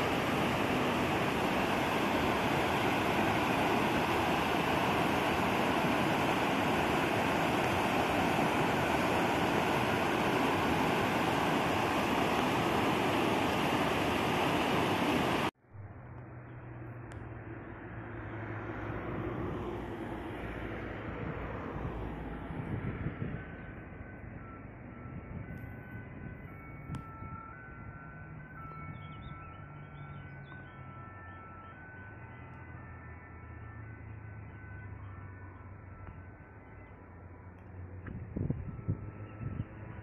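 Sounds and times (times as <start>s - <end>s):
stream rushing over rocks: 0.0s - 15.6s
low outdoor hum: 0.0s - 22.6s.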